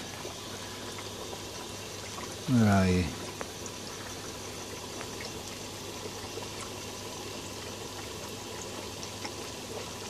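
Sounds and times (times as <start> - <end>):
low steady hum: 0.0 - 10.0
water trickling and bubbling: 0.0 - 10.0
faint ticks: 3.2 - 4.2, 4.8 - 5.6.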